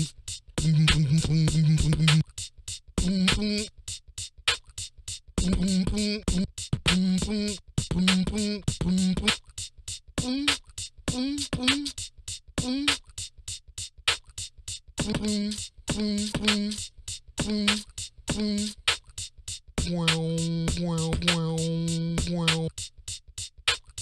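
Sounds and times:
pitched vocal effect notes: 0:00.0 - 0:02.2, 0:15.0 - 0:16.8, 0:17.4 - 0:18.8, 0:19.8 - 0:22.7
beatbox mouth clicks and hi-hat hits: 0:00.0 - 0:24.0.

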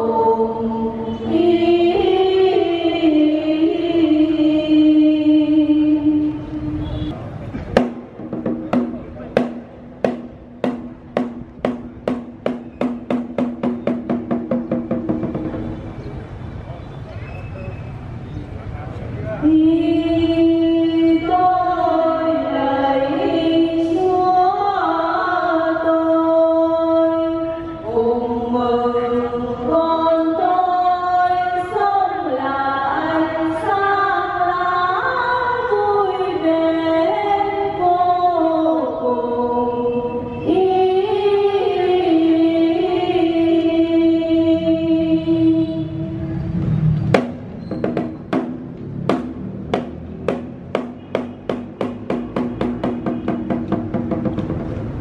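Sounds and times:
choir singing a hymn: 0:00.0 - 0:06.4, 0:19.6 - 0:27.2, 0:27.8 - 0:46.0.

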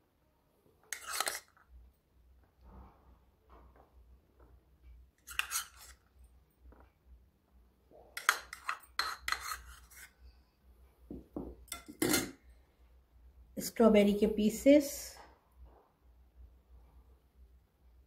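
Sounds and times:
spoon scraping plastic bowl: 0:00.9 - 0:01.6, 0:05.2 - 0:06.1, 0:08.2 - 0:10.2.

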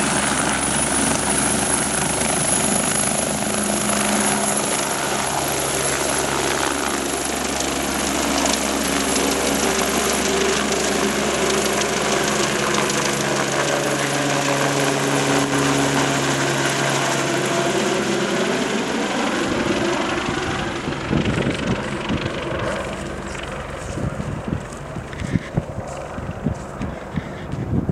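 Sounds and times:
helicopter rotor and turbines: 0:00.0 - 0:27.9
wind buffeting microphone: 0:19.3 - 0:27.9.

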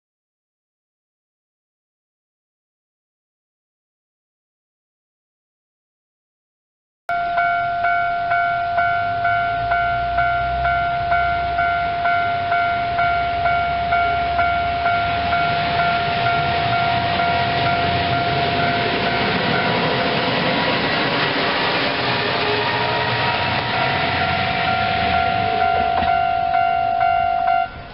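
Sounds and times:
diesel railcar engine and wheels: 0:07.1 - 0:27.9
level-crossing warning bell: 0:07.1 - 0:27.9.

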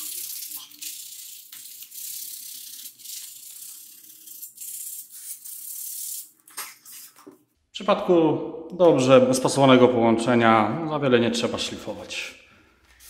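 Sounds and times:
sandpaper rasping strokes: 0:00.0 - 0:07.3.

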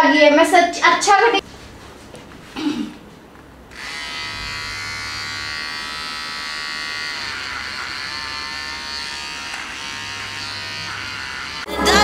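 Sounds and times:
electric hair clipper buzzing: 0:03.7 - 0:11.7.

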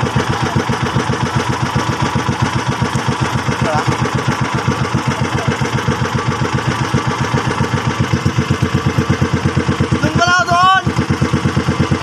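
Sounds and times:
boat engine chugging: 0:00.0 - 0:12.0.

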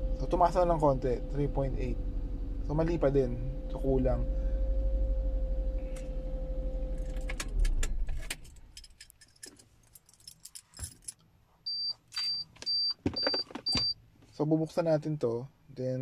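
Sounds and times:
light clicks and rattles: 0:07.0 - 0:11.3.

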